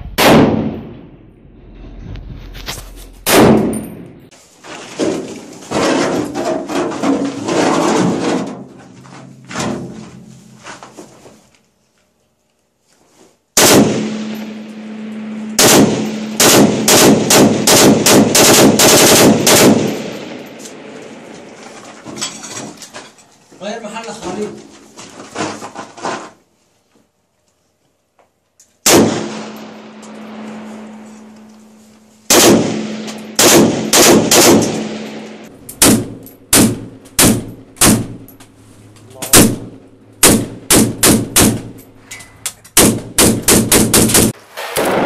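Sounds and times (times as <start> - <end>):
rifle shots echoing in a room: 0.2 - 1.2, 3.2 - 4.0, 13.6 - 21.3, 28.8 - 31.4, 32.3 - 38.3, 39.3 - 41.8, 42.8 - 45.0.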